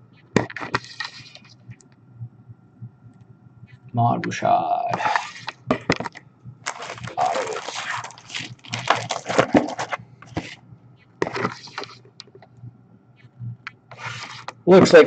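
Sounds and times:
plastic bag crinkling: 6.6s - 10.6s.

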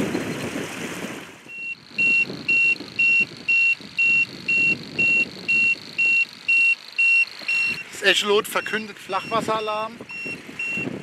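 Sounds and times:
high even alarm beeps: 1.5s - 11.0s.

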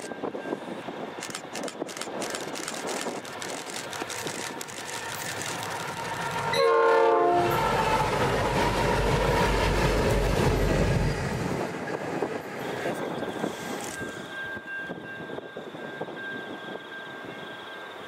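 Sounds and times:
diesel locomotive engines rumbling: 0.0s - 18.0s
locomotive horn chord: 6.5s - 7.9s.

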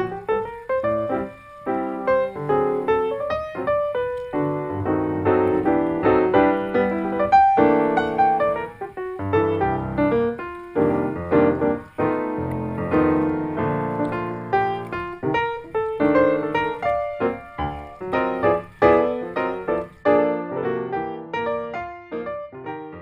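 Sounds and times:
piano music: 0.0s - 23.0s.

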